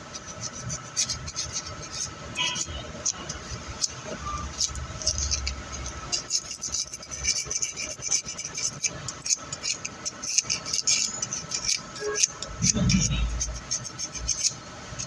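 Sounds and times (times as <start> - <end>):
sandpaper scratching metal: 0.0 - 15.0.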